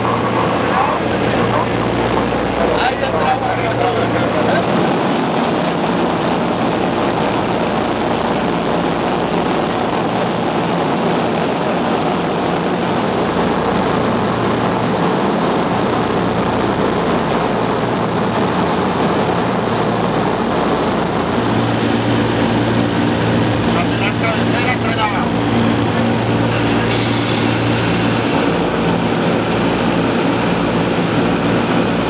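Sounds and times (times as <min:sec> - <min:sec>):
propeller aircraft engines in flight: 0:00.0 - 0:32.0.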